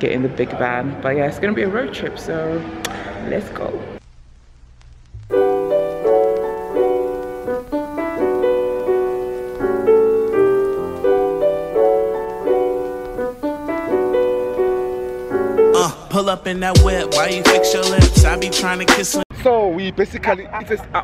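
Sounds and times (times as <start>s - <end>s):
piano melody: 5.3s - 19.2s.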